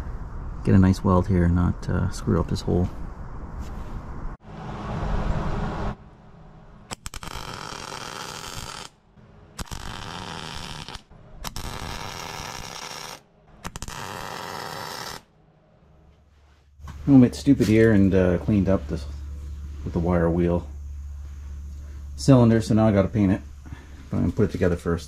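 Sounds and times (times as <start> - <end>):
welding arc crackling: 6.9 - 9.0, 9.6 - 15.3.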